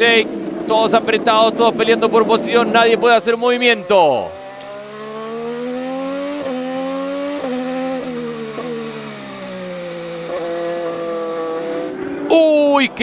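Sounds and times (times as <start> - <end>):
racing car engine with upshifts: 0.0 - 13.0.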